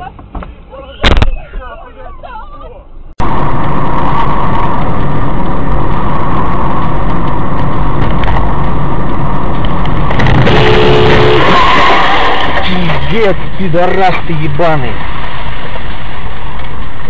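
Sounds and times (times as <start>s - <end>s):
car engine and road noise: 0.0s - 17.0s
two-note car horn: 10.4s - 12.2s.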